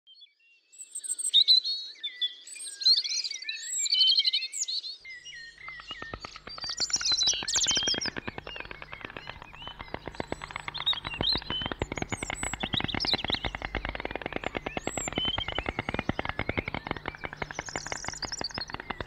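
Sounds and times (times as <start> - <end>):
songbirds chirping and trilling: 0.1 - 19.0
stork bill-clattering: 5.6 - 19.0.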